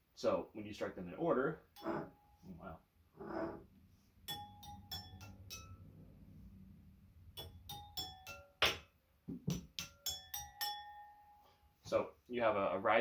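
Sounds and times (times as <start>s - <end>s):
wine glasses struck with stick: 4.3s - 5.9s, 7.3s - 8.9s, 9.5s - 11.4s.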